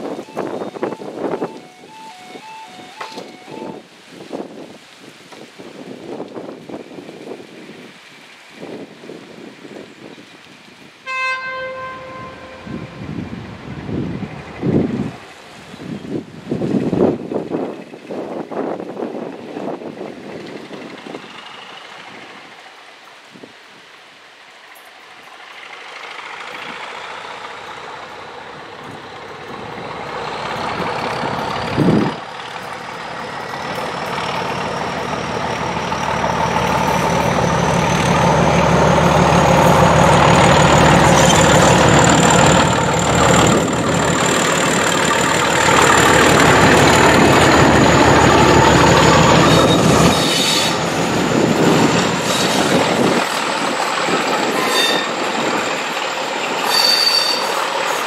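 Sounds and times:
diesel locomotive engine working: 0:00.0 - 0:04.7, 0:11.4 - 0:58.0
train wheels clattering: 0:24.8 - 0:58.0.

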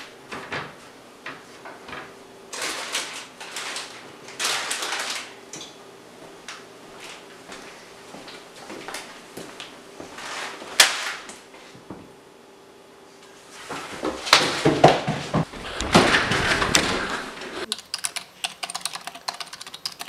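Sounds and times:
snack packaging rustling: 0:02.6 - 0:05.3.

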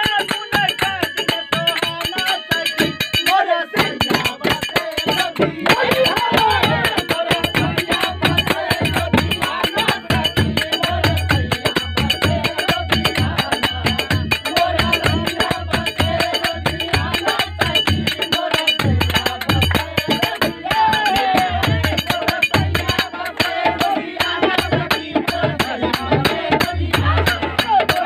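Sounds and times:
sustained harmonium: 0:00.0 - 0:20.6
hand drum playing: 0:03.9 - 0:07.0.

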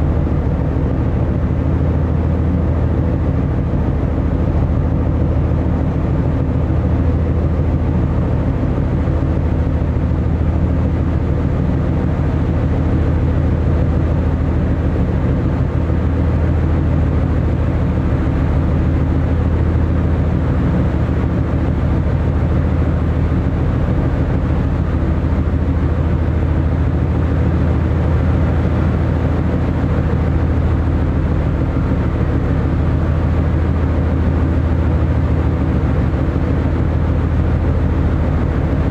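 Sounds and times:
ship engines low drone: 0:00.0 - 0:38.9.

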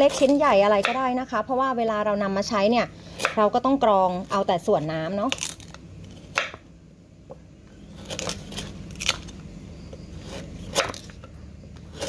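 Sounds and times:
knife slicing root: 0:00.0 - 0:01.2, 0:03.1 - 0:03.6, 0:07.8 - 0:09.4, 0:10.2 - 0:12.0.

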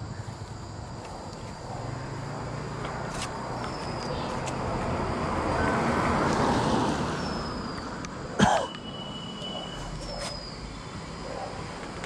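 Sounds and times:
car driving past: 0:01.8 - 0:08.0.

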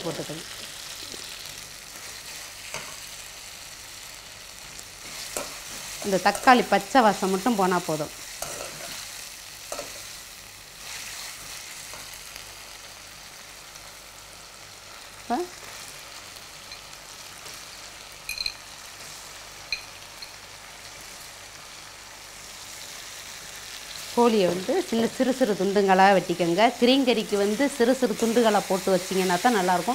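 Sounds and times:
food sizzling in hot oil: 0:00.0 - 0:29.9
metal spoon scraping pan: 0:08.4 - 0:09.0
spoon clinks: 0:18.3 - 0:18.6, 0:19.7 - 0:20.4.

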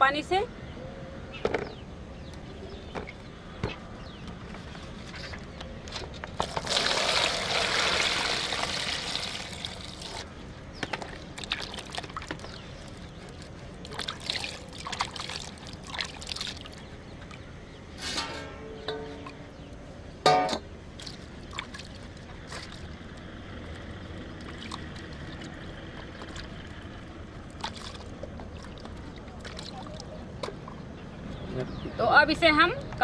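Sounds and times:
water pouring into tub: 0:06.4 - 0:10.3, 0:13.8 - 0:16.8, 0:27.5 - 0:29.9
fruits sloshing in water: 0:11.1 - 0:16.9, 0:21.0 - 0:30.1.

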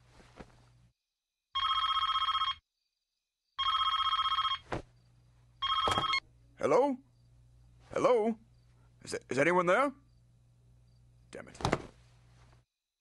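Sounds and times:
cordless telephone ringing: 0:01.6 - 0:02.6, 0:03.6 - 0:04.6, 0:05.6 - 0:06.2.

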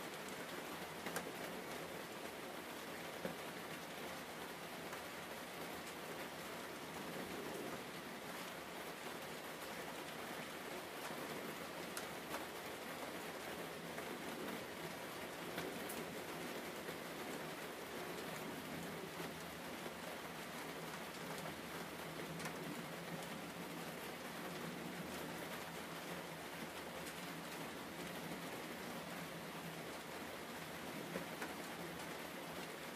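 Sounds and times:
rain-like hiss: 0:00.0 - 0:32.9.

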